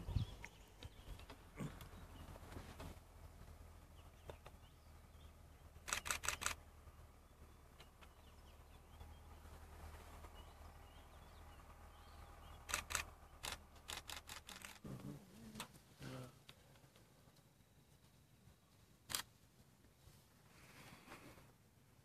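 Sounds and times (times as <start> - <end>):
faint bird calls: 0.0 - 16.9
camera shutter clicks: 5.8 - 6.6, 12.7 - 14.8, 19.1 - 19.3.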